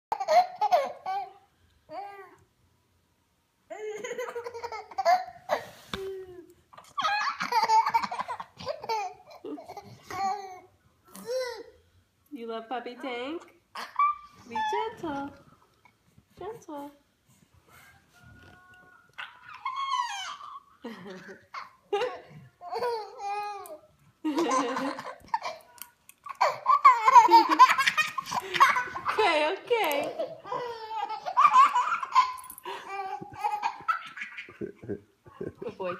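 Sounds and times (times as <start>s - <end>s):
baby laughing: 0.1s - 1.4s, 3.7s - 5.6s, 6.7s - 11.7s, 13.7s - 14.7s, 19.2s - 35.9s.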